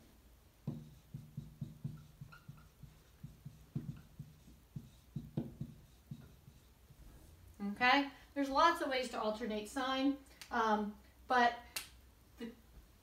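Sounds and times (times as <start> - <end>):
marker squeaking on whiteboard: 0.6 - 7.0.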